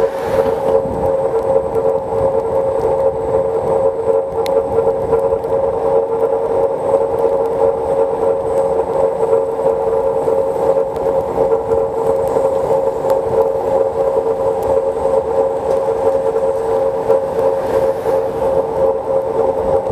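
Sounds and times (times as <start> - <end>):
rushing of tyres and air: 0.0 - 1.2, 9.2 - 19.9
electric scooter whine: 0.0 - 19.9.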